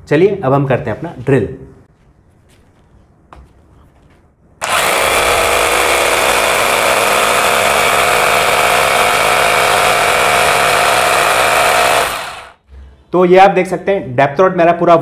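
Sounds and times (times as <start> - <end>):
rotary hammer drill boring into wall: 4.6 - 12.6.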